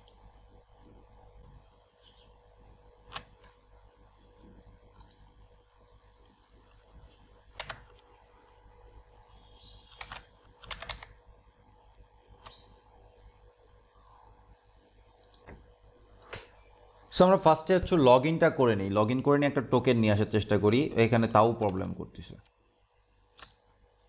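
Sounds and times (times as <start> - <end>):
computer keyboard keystrokes: 3.1 - 3.6, 5.0 - 5.3, 7.5 - 8.0, 9.9 - 11.2, 15.2 - 15.6.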